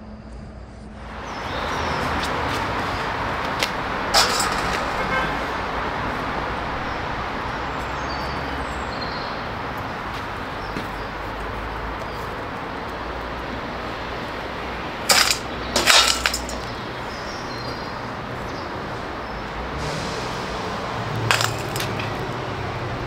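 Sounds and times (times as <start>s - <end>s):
metal objects clinking: 4.2s - 5.2s, 15.1s - 16.9s, 21.3s - 22.2s.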